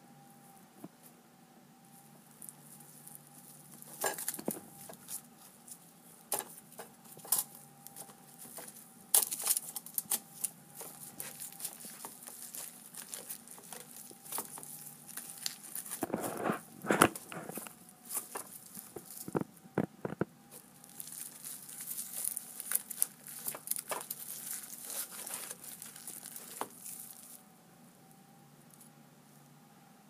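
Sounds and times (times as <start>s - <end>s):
aluminium foil crinkling: 2.0s - 27.4s.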